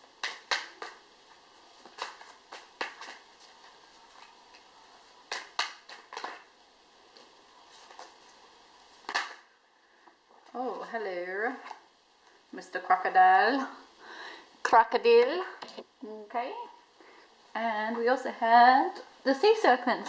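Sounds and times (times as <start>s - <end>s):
cards being shuffled: 0.2s - 4.7s, 5.3s - 6.5s.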